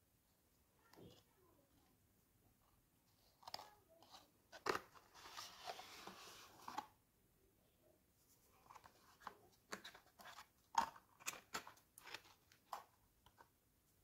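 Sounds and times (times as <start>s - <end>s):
boxes crinkling and clicking: 8.7s - 13.5s.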